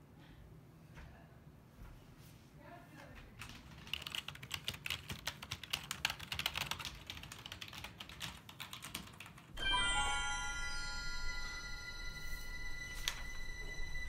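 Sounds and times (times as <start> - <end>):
fast typing on keyboard: 3.4 - 9.6
music with bell-like chimes: 9.6 - 14.0.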